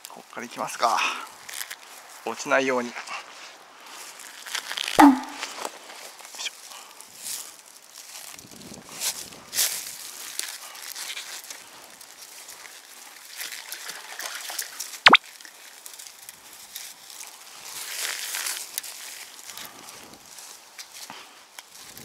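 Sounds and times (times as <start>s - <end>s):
light crackling and rustling: 1.3s - 14.0s
water sloshing and trickling: 12.9s - 15.6s.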